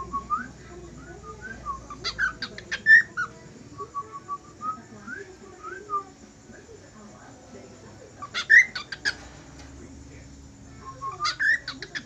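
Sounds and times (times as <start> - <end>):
sharp bird chirps: 8.2 - 9.3, 10.8 - 12.0
cockatiel whistling: 10.9 - 12.0.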